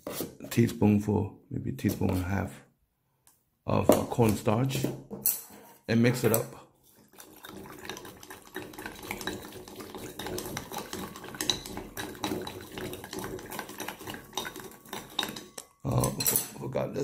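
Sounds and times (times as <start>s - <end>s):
liquid splashing: 6.8s - 15.6s.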